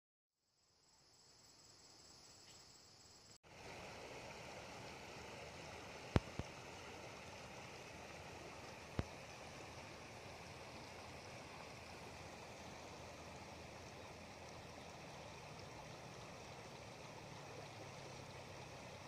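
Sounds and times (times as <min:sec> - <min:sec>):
insects chirring: 0:00.4 - 0:03.4
river over gravel: 0:03.4 - 0:19.0.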